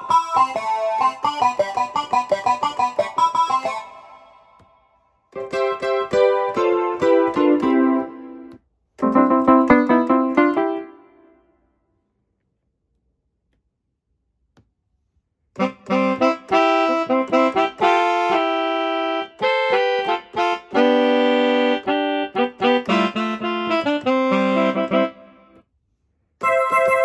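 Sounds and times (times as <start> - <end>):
keyboard saxophone melody: 0.0 - 4.7, 5.4 - 11.4, 15.6 - 25.6, 26.4 - 27.0.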